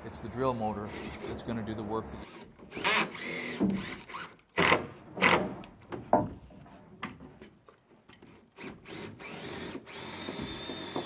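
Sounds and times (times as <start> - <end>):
tool rasping on lumber: 0.4 - 1.5.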